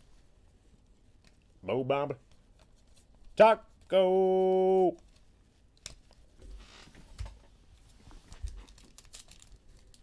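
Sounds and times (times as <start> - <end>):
foil wrapper rustling: 8.4 - 10.0.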